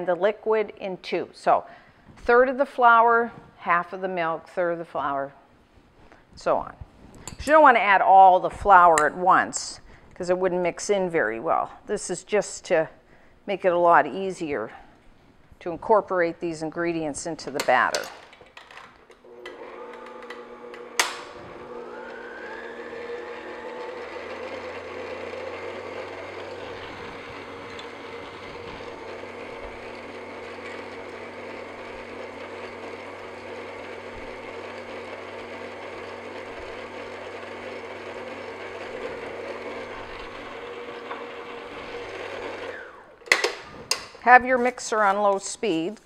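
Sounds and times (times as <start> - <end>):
stand mixer motor whining: 19.2 - 43.3.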